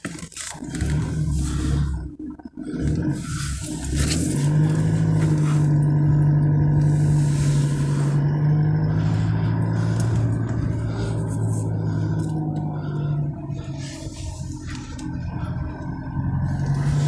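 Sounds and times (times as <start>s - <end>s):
car engine and road noise: 0.0s - 17.0s.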